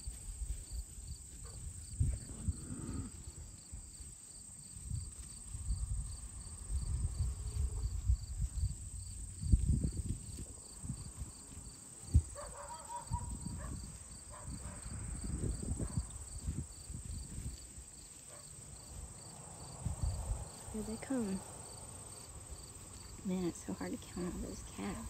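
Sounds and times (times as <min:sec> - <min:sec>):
insects trilling: 0:10.2 - 0:25.0.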